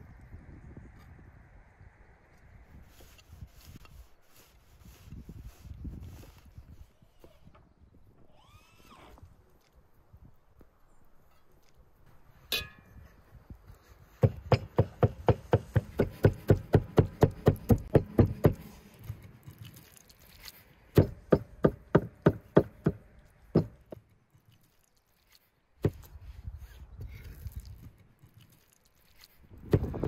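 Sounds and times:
metallic clink: 12.5s - 13.1s.

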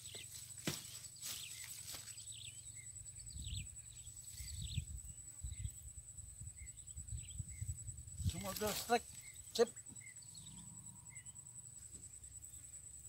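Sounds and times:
short chirping calls: 6.5s - 11.4s.

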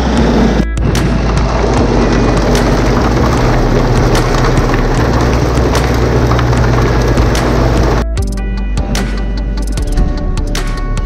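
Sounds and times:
feed pouring from chute: 0.0s - 8.0s
low motor hum: 0.0s - 8.2s.

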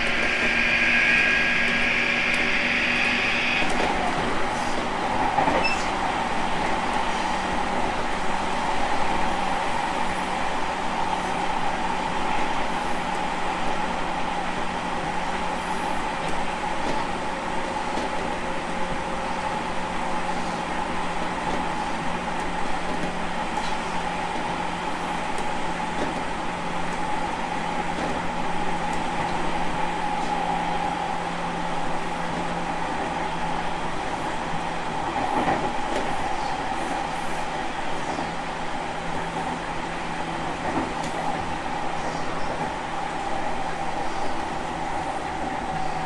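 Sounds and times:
electric train high-pitched whine: 0.0s - 4.8s
train wheels rumbling on rails: 0.0s - 46.0s.

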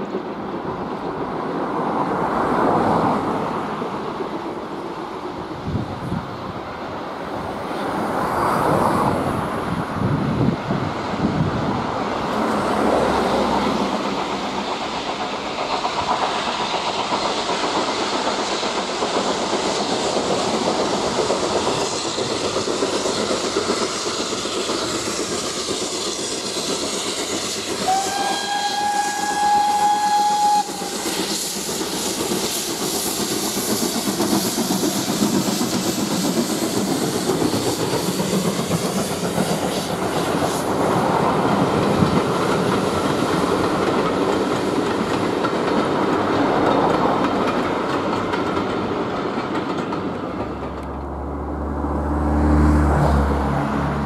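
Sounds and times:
steam train rushing: 0.0s - 54.0s
long steam whistle blast: 27.1s - 32.0s.

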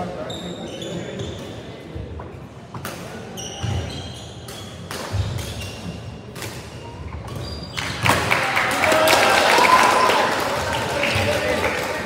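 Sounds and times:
shoes squeaking: 0.1s - 2.4s, 3.1s - 8.1s
racket hitting shuttlecock: 4.4s - 7.4s.

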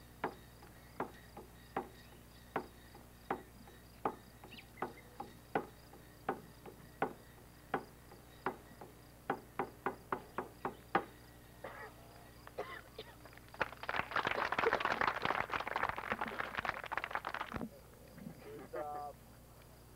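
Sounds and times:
audience clapping: 13.2s - 17.7s.

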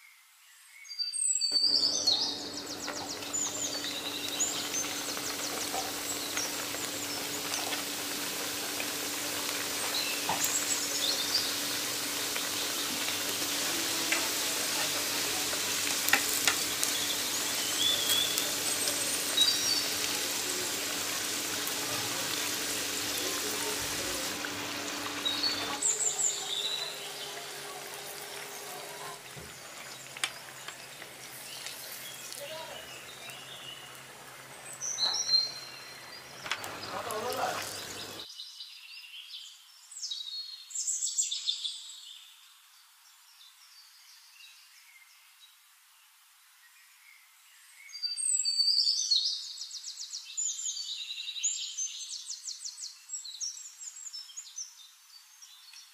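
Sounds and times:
birds chirping and trilling: 0.5s - 38.6s
oil sizzling and bubbling: 1.5s - 38.3s.

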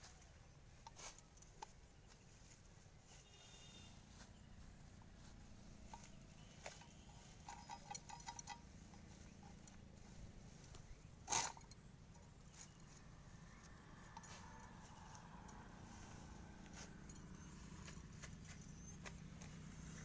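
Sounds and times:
rustling of plants handled by hand: 0.0s - 20.0s.

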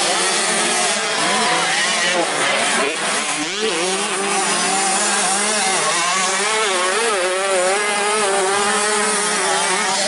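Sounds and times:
motocross bike engines revving: 0.0s - 10.0s.

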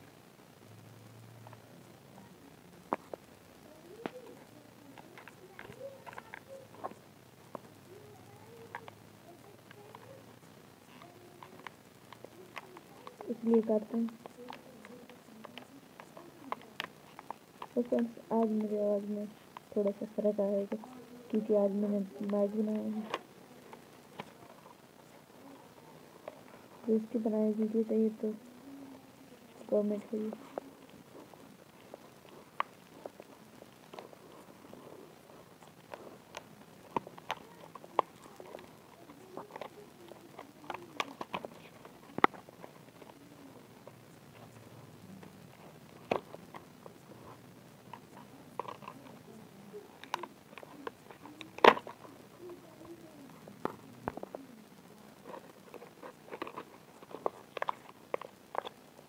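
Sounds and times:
plastic snapping: 50.0s - 52.0s.

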